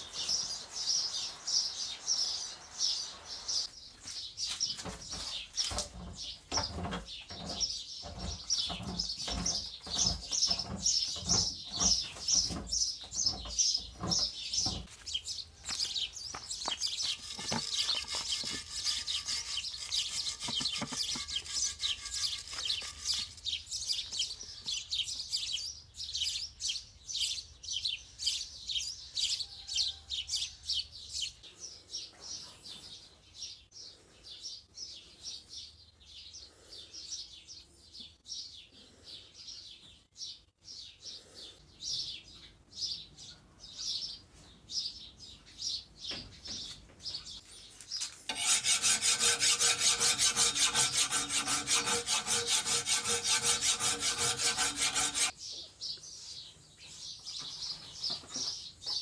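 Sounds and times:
wire brush scrubbing metal: 16.9 - 24.0, 48.3 - 55.3.

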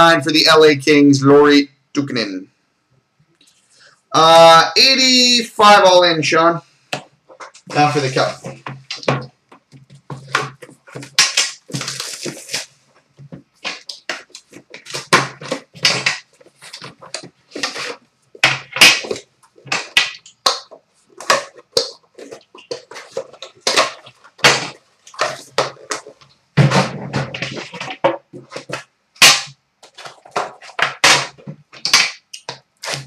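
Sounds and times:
plastic wrapping crinkling: 7.3 - 33.0.

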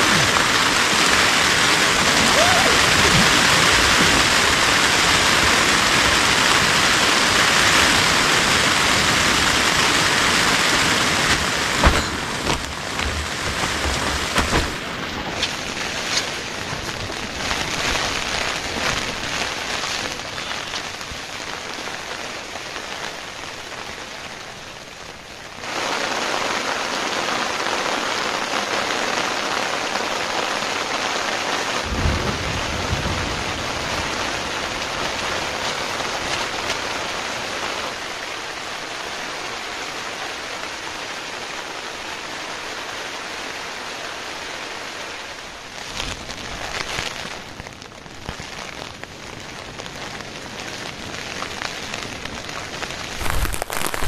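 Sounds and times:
raindrops tapping: 0.0 - 22.0, 45.8 - 54.0
rain falling: 0.0 - 54.0.

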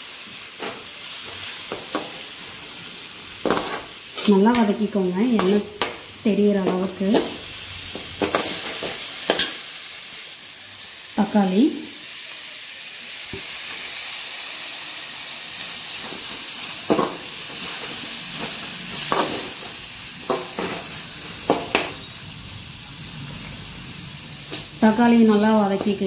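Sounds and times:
food sizzling in hot oil: 0.0 - 26.0
steel ladle scraping pan: 3.4 - 4.8.

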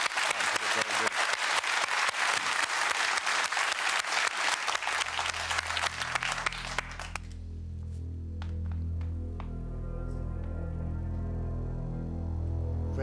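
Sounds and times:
audience applauding: 0.0 - 7.4
low steady music drone: 4.8 - 13.0.

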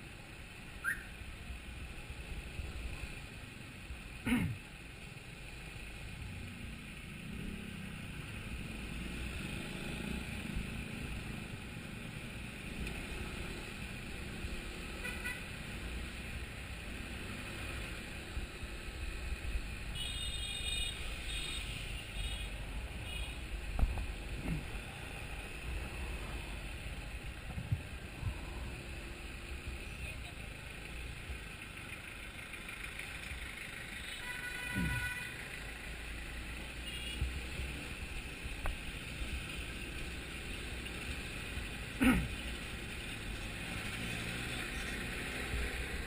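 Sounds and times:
motorcycle engine rumble: 0.0 - 46.0
vehicle horn toots: 34.0 - 35.4.

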